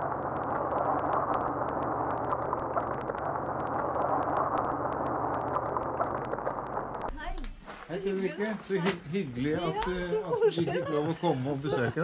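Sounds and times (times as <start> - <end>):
small crackles: 0.0 - 7.8.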